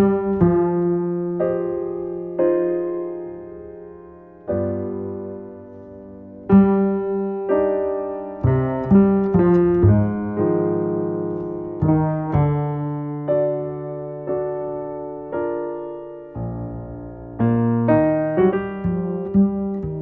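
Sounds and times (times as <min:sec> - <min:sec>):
jazz piano chords: 0:00.0 - 0:20.0.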